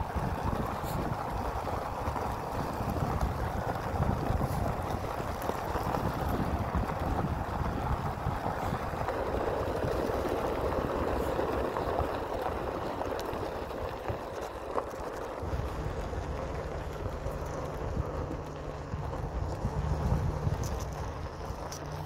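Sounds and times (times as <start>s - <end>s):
low engine rumble: 0.0s - 22.0s
tyres crunching on gravel: 0.0s - 22.0s.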